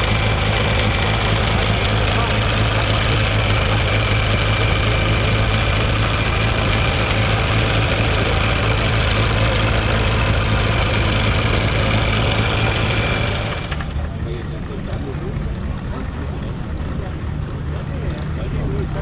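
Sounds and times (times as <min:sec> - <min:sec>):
garden tractor engine idling: 0:00.0 - 0:19.0.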